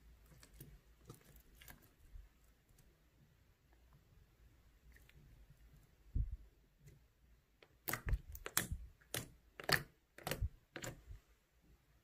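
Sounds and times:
crackling clicks and pops of slime: 7.6 - 11.0.

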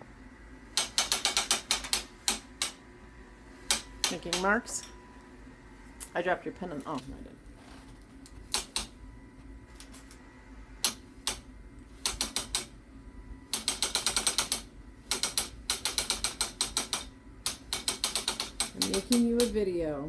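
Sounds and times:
loom ratchet clicking: 0.8 - 2.8, 12.0 - 12.7, 13.5 - 19.6.

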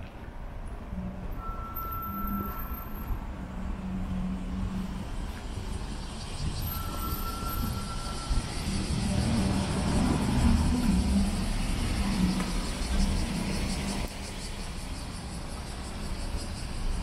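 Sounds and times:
electric train rumble: 0.8 - 17.0
thin high whine: 1.0 - 14.0.

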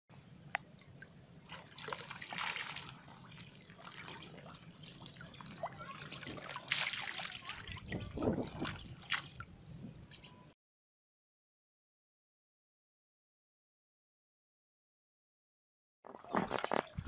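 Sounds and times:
muddy water sloshing: 0.7 - 9.5, 16.1 - 17.0.

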